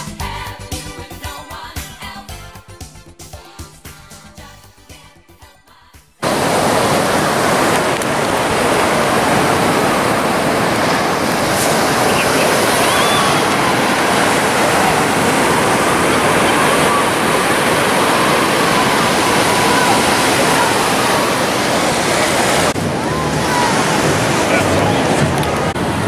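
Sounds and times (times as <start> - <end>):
ocean surf breaking: 6.2 - 26.0
distant crowd chatter: 6.8 - 26.0.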